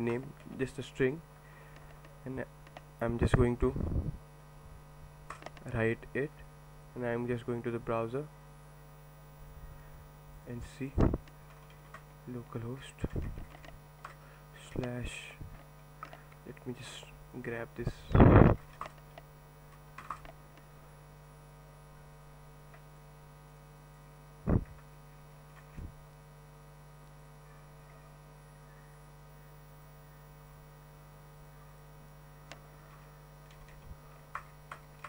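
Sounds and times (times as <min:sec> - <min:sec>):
electrical hum: 0:00.0 - 0:35.0
keyboard and mouse clicks: 0:20.0 - 0:20.6.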